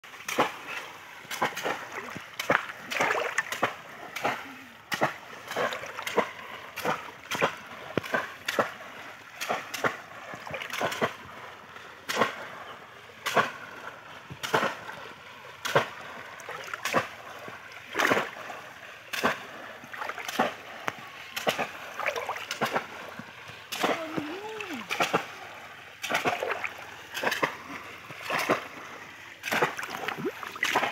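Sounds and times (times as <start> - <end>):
fish traps splashing into water: 0.1 - 11.4, 12.1 - 12.6, 13.2 - 30.9.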